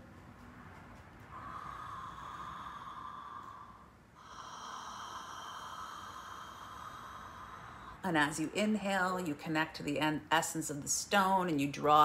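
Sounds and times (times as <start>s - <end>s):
woman breathing out slowly: 1.3s - 8.0s.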